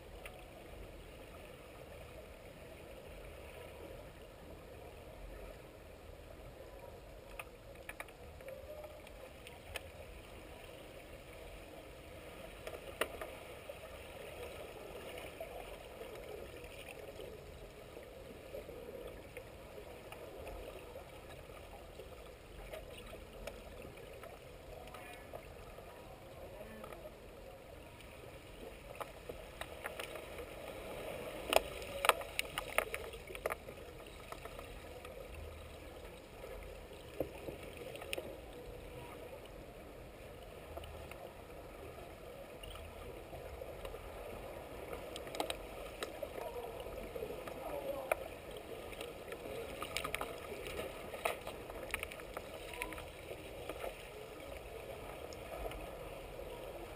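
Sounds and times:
muffled underwater water noise: 0:00.0 - 0:56.9
sharp underwater clicks and knocks: 0:07.2 - 0:10.0, 0:12.6 - 0:13.4, 0:28.9 - 0:30.5, 0:31.4 - 0:35.2, 0:45.1 - 0:46.4, 0:48.9 - 0:54.0.

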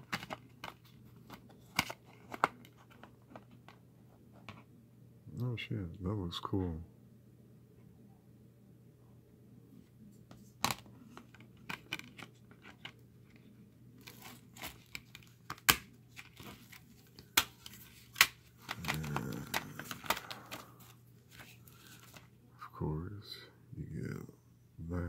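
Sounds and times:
plastic case clicking and rattling: 0:00.0 - 0:03.8, 0:10.6 - 0:22.2
paper rustling: 0:14.0 - 0:22.3.

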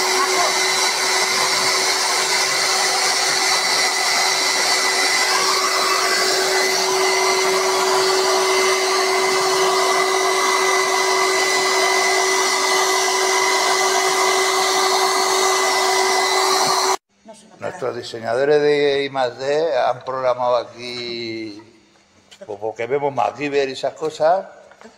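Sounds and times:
power tool motor whirring: 0:00.0 - 0:17.0.

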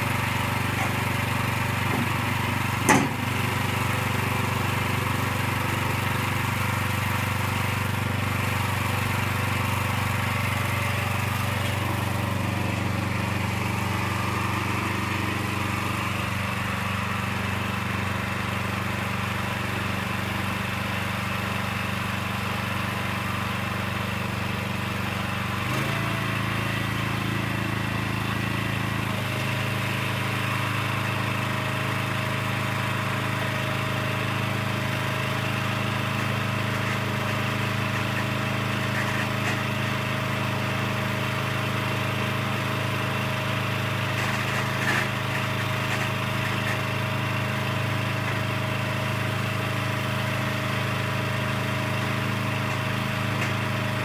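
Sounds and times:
small gasoline engine running: 0:00.0 - 0:54.0.

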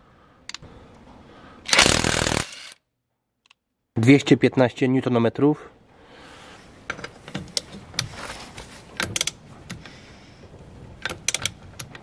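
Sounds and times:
torque wrench clicking: 0:11.0 - 0:12.0.

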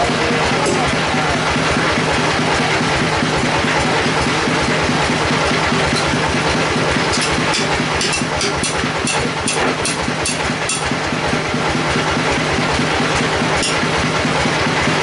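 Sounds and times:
sawmill machine drone: 0:00.0 - 0:15.0.

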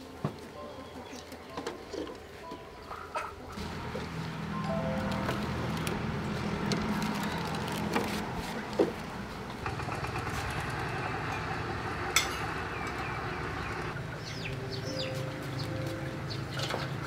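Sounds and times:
chickens clucking: 0:00.6 - 0:04.0.

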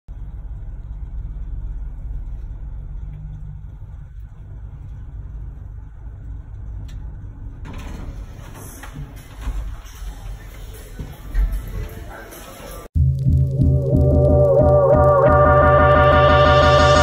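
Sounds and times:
elevator rumbling: 0:00.1 - 0:12.9
background ambience: 0:00.1 - 0:17.0.

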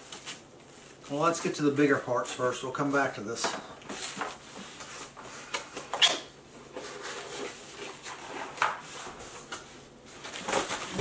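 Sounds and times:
packaging rustling: 0:00.0 - 0:02.4.

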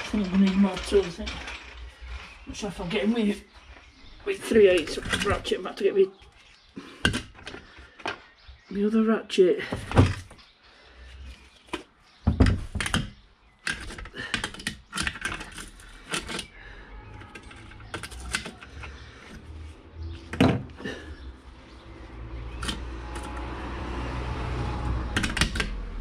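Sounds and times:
metal tools clattering in toolbox: 0:00.0 - 0:03.2, 0:04.4 - 0:05.6, 0:13.6 - 0:19.0.

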